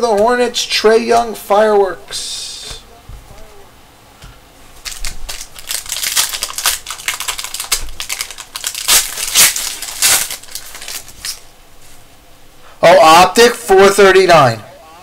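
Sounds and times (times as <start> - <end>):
foil wrapper tearing and crinkling: 4.8 - 11.5.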